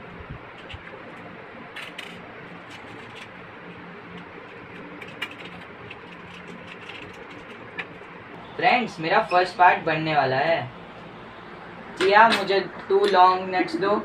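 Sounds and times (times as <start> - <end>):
faint hum: 0.0 - 14.0
small metal parts clicking: 1.8 - 3.3.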